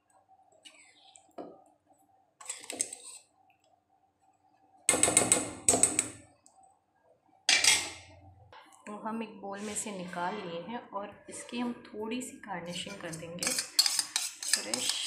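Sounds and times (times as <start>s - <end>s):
spoon scraping steel pan: 2.4s - 3.3s, 12.7s - 15.0s.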